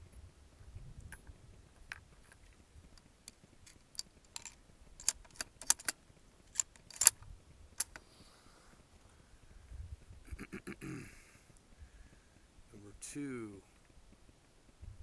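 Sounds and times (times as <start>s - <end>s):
rifle bolt clicking: 3.7s - 7.2s, 7.8s - 8.0s.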